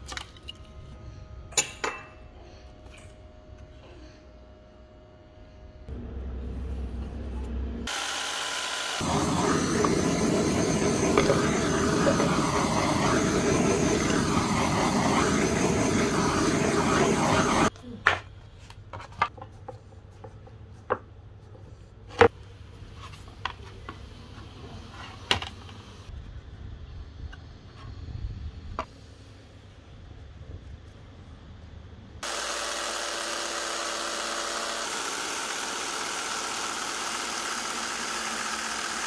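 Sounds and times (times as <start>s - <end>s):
power tool running: 7.8s - 17.7s, 32.2s - 39.0s.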